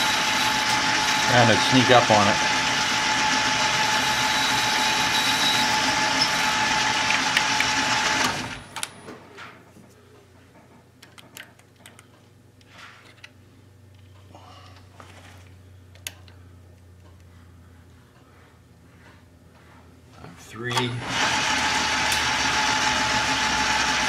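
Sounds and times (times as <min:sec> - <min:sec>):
metal lathe whining: 0:00.0 - 0:08.6, 0:21.0 - 0:24.0.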